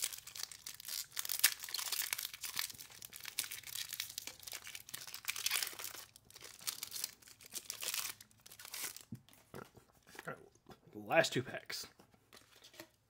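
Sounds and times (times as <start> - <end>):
foil wrapper crinkling: 0.0 - 9.1.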